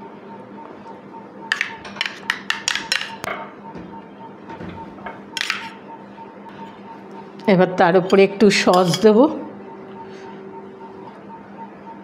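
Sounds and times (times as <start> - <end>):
metal spoon clinking on bowl: 8.0 - 9.2
spoon rasping on bowl: 8.1 - 9.1.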